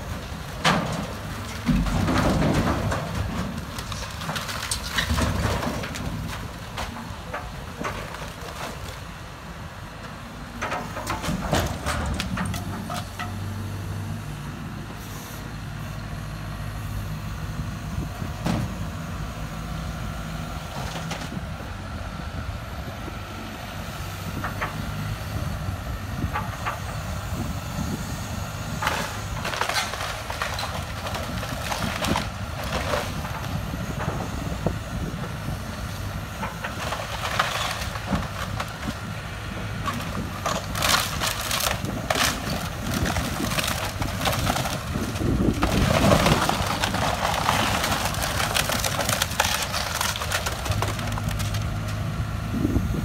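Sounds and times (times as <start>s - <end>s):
excavator diesel engine running: 0.0s - 53.0s
wood and roofing cracking: 0.1s - 9.0s, 28.8s - 33.5s, 39.8s - 52.0s.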